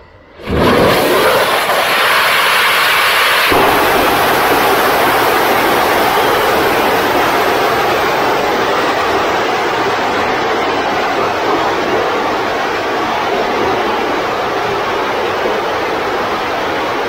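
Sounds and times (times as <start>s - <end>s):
rocket exhaust rushing: 0.4s - 10.5s.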